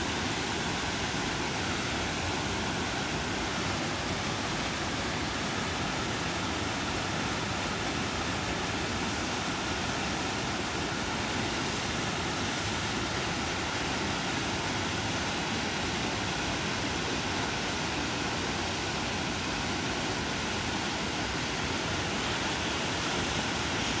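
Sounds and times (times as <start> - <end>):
waterfall roaring: 0.0 - 24.0.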